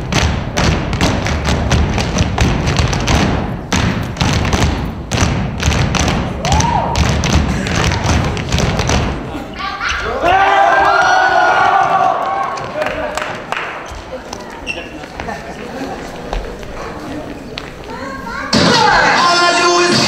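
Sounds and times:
feet stomping on floor: 0.0s - 9.2s
music: 18.5s - 20.0s.

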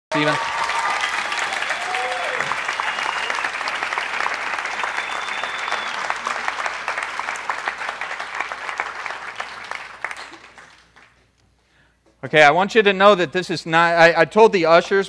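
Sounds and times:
audience applauding: 0.1s - 11.2s.

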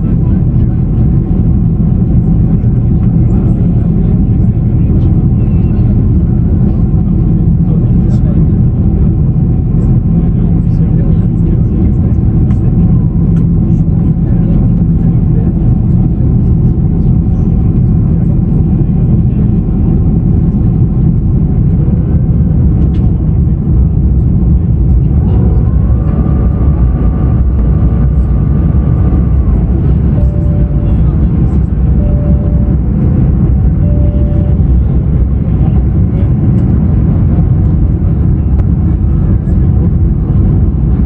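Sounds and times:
faint steady whine: 0.0s - 41.0s
jet engines rumbling: 0.0s - 41.0s
faint short tone: 30.1s - 31.2s, 31.9s - 32.8s, 33.8s - 34.9s.

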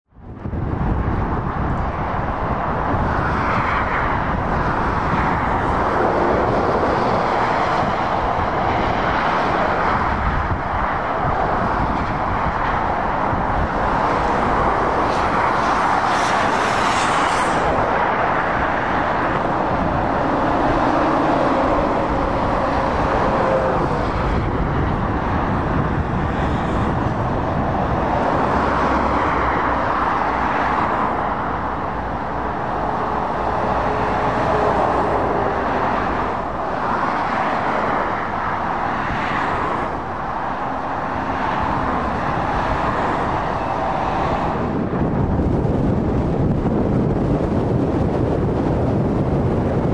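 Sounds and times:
road traffic passing: 0.1s - 49.9s
heavy lorry passing close: 0.4s - 49.9s.

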